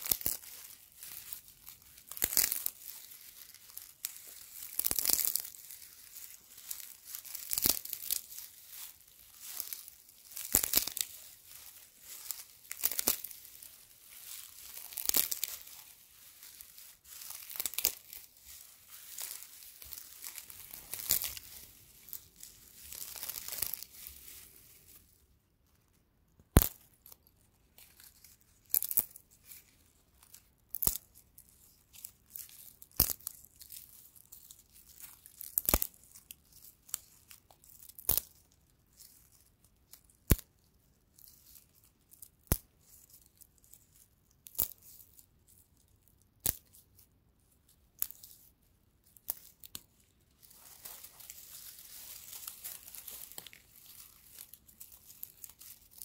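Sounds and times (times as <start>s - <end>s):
straw stalks snapping: 0.0s - 25.0s, 26.5s - 29.6s, 30.2s - 31.2s, 32.3s - 33.7s, 34.4s - 38.4s, 40.0s - 40.5s, 44.4s - 44.8s, 46.4s - 46.8s, 49.1s - 56.0s
dry straw rustling: 0.0s - 25.2s, 49.4s - 56.0s.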